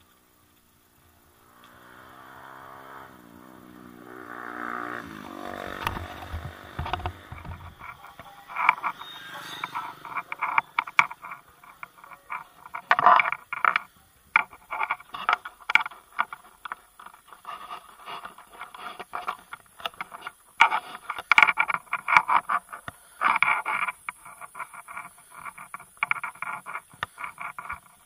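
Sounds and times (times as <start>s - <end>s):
faint high hiss: 0.0s - 10.8s
bicycle rattling on paved road: 0.0s - 28.0s
bicycle squeaks: 4.6s - 28.0s.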